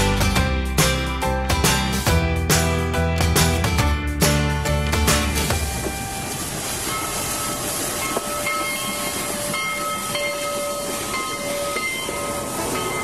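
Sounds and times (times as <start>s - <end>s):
steam hissing: 5.6s - 13.0s.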